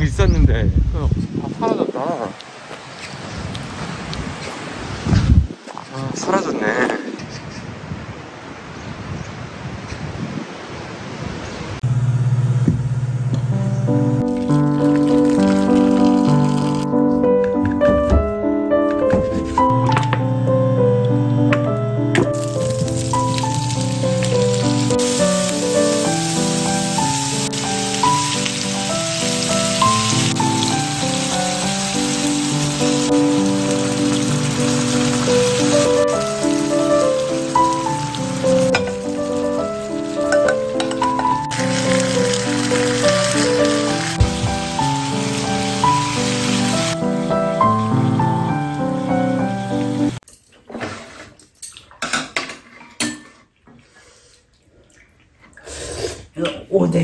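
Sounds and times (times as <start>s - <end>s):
rain-like hiss: 1.3s - 7.2s, 14.2s - 16.9s, 22.3s - 50.2s
slow melody of held notes: 11.8s - 50.2s
background music: 13.5s - 50.2s.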